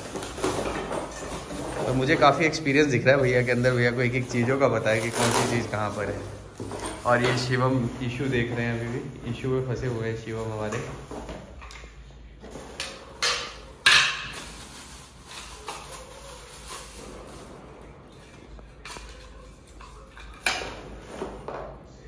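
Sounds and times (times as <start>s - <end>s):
chair parts knocking on stone floor: 0.0s - 2.8s, 4.2s - 8.9s, 12.5s - 14.7s
plastic wrap rustling: 0.0s - 11.6s, 13.2s - 21.8s.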